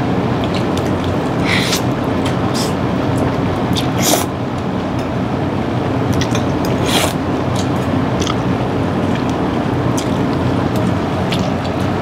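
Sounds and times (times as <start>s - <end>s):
low background hum: 0.0s - 12.0s
chewing with wet mouth clicks: 0.4s - 4.0s, 6.1s - 8.4s, 9.0s - 11.9s.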